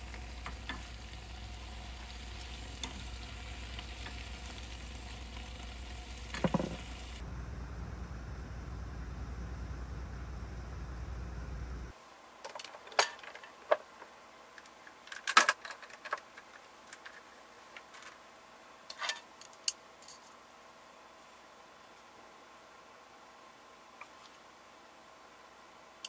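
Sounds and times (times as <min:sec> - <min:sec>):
steady low rumble: 0:07.0 - 0:11.9.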